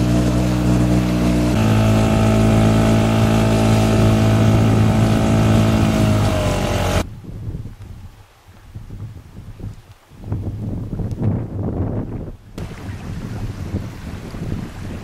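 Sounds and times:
boat motor running: 0:00.0 - 0:07.0, 0:12.6 - 0:15.0
faint wind: 0:00.0 - 0:15.0.

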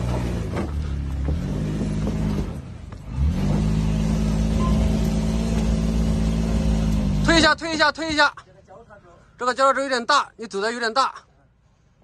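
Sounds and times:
car engine revving: 0:00.0 - 0:07.6.

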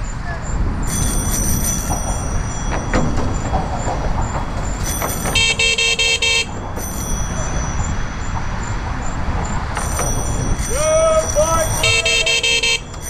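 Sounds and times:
wind and riding noise: 0:00.0 - 0:13.0
bicycle horn honks: 0:05.3 - 0:06.6, 0:11.4 - 0:13.0.

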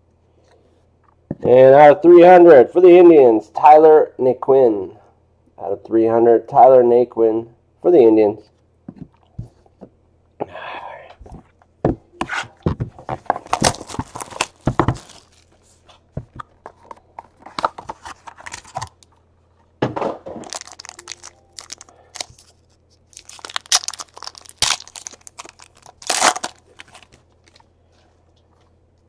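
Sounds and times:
cardboard box handling: 0:12.3 - 0:15.4
foil pack crinkling and tearing: 0:13.2 - 0:15.9, 0:20.4 - 0:27.6.

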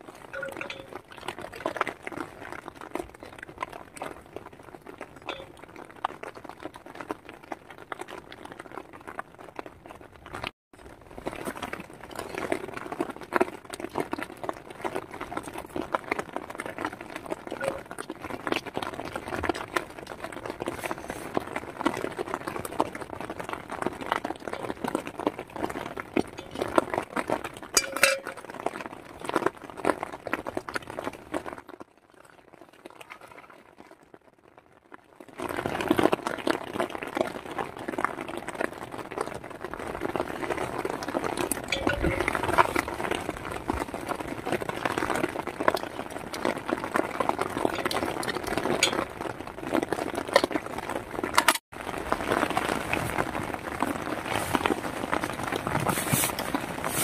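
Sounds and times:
rain pattering on tent fabric: 0:00.0 - 0:57.0
fork clinking against bowl: 0:27.8 - 0:28.4.

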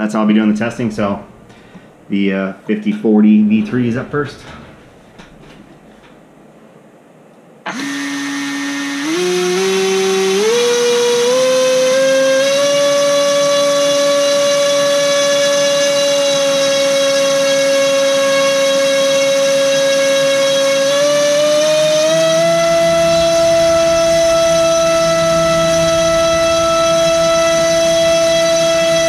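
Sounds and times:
electric motor propeller whine: 0:07.7 - 0:29.0.

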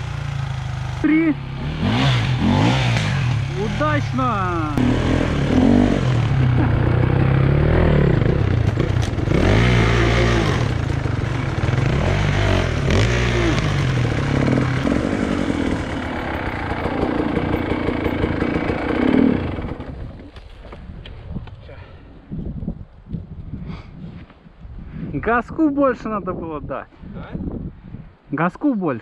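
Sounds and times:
motorcycle engine revving: 0:00.0 - 0:20.3.

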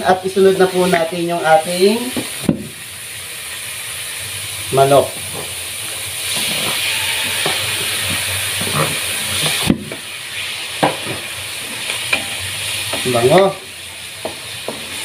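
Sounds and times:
chicken sizzling in hot oil: 0:00.0 - 0:15.0
spatula knocking and scraping wok: 0:06.3 - 0:10.1, 0:10.8 - 0:13.6, 0:14.2 - 0:15.0.

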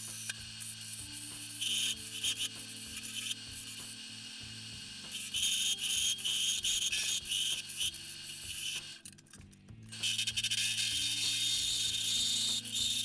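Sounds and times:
wood lathe spinning: 0:10.0 - 0:13.0.

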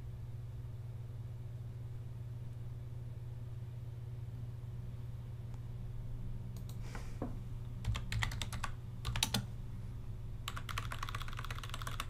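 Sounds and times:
low steady hum: 0:00.0 - 0:12.0
keyboard typing: 0:07.8 - 0:09.5, 0:10.5 - 0:12.0.

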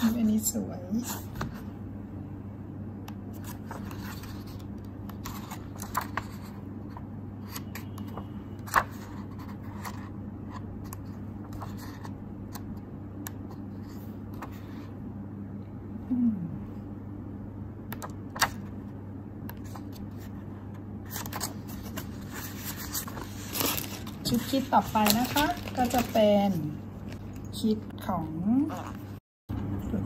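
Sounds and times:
paper pages rustling: 0:03.4 - 0:06.6, 0:21.1 - 0:27.4
low hum: 0:10.0 - 0:30.0.

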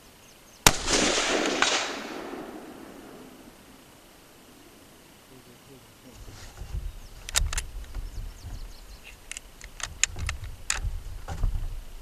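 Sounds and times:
rifle mechanical clicks: 0:07.2 - 0:07.7, 0:09.3 - 0:10.8.

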